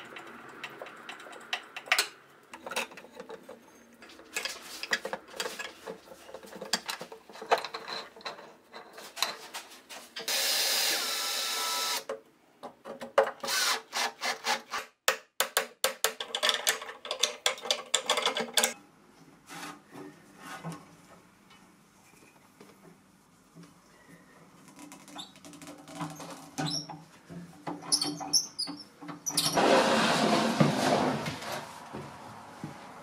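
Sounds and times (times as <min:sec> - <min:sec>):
hand tools scraping and clicking: 0:00.1 - 0:10.3, 0:16.0 - 0:18.8
cordless drill drilling: 0:10.3 - 0:12.0, 0:13.5 - 0:14.1.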